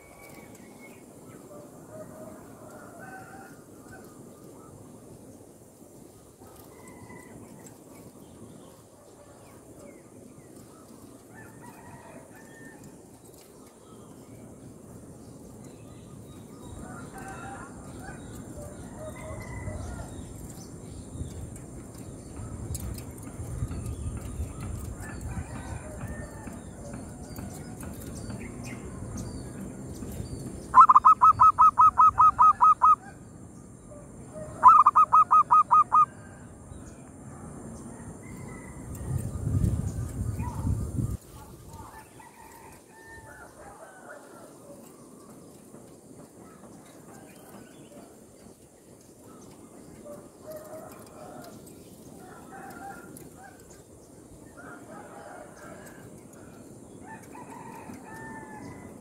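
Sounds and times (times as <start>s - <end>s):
dove cooing: 30.7s - 33.2s, 34.3s - 36.1s.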